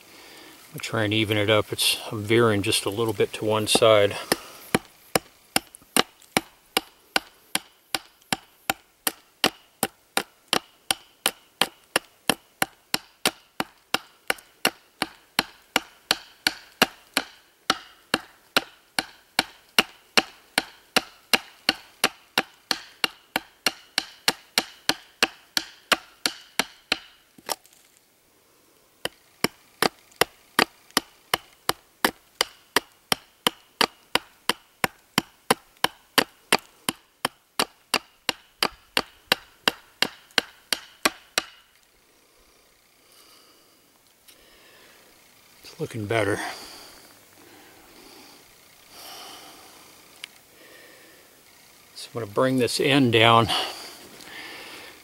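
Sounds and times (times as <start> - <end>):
knife chopping wooden stick: 2.7 - 27.6, 29.0 - 41.6.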